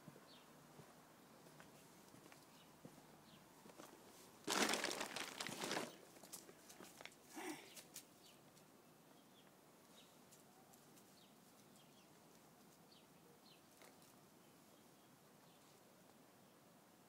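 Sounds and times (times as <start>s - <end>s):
faint outdoor ambience: 0.0s - 17.0s.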